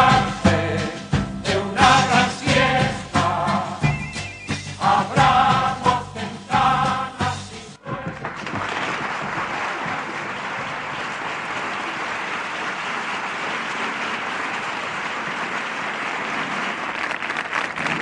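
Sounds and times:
audience applauding: 0:07.8 - 0:18.0.

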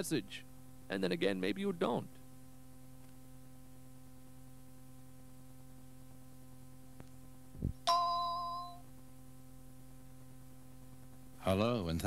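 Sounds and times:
cassette playback hiss: 0:00.0 - 0:07.9, 0:08.8 - 0:12.0
low mains hum: 0:00.0 - 0:12.0
electronic bell-like chime: 0:07.8 - 0:08.8.

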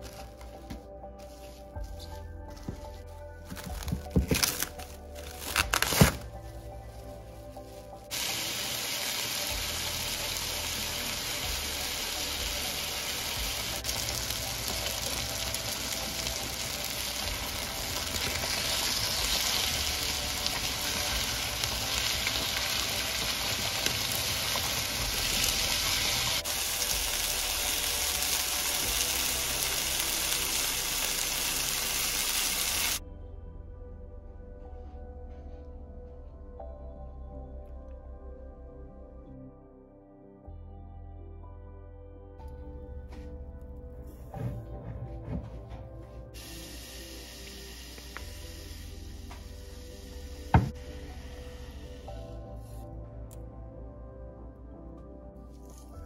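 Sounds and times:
chicken sizzling in a frying pan: 0:08.1 - 0:33.0, 0:46.4 - 0:52.1.

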